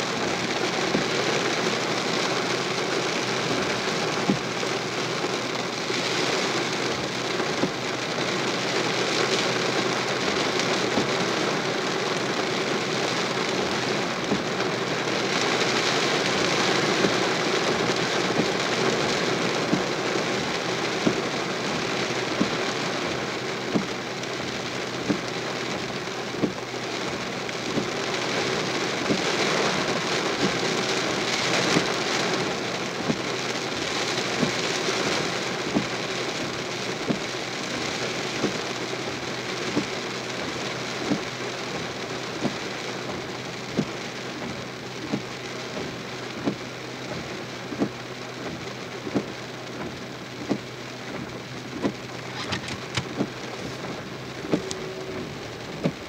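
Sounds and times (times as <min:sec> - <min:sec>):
heavy rain splashing: 0:00.0 - 0:56.0.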